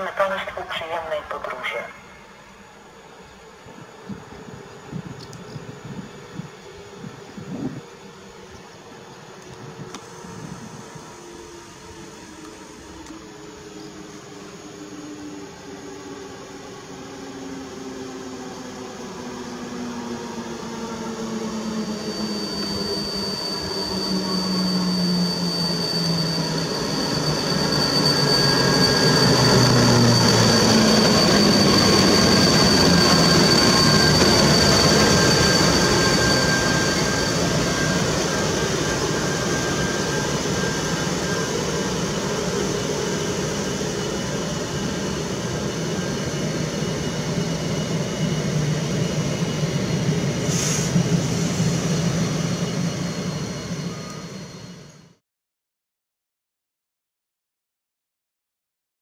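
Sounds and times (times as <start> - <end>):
train rolling past: 0.0 - 55.2
high brake squeal: 21.0 - 55.2
brief hiss: 50.5 - 51.0.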